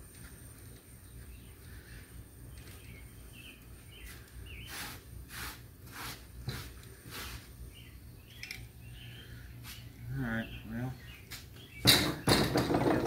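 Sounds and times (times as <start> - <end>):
low steady hum: 0.0 - 13.0
small birds chirping: 0.5 - 5.1, 6.9 - 12.4
short rubbing strokes: 4.1 - 7.5.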